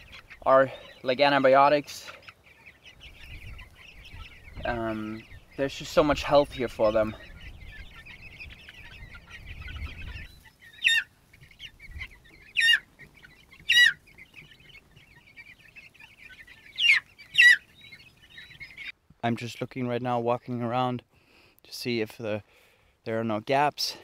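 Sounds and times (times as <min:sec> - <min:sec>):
chicks peeping and chirping: 0:00.0 - 0:24.0
loud descending chick calls: 0:02.9 - 0:14.1, 0:16.2 - 0:18.9.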